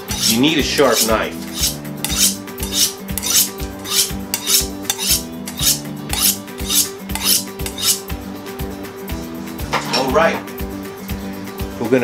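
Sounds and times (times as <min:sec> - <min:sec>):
knife scraping on honing steel: 0:00.0 - 0:08.1.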